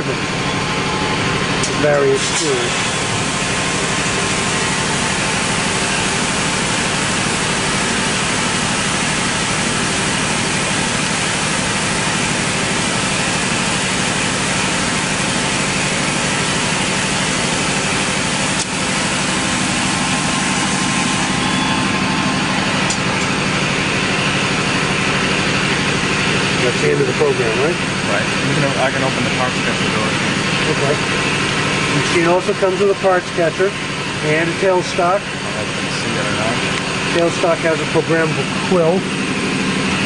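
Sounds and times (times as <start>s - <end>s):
coolant spraying against window: 0.0s - 40.0s
machine hum: 0.0s - 40.0s.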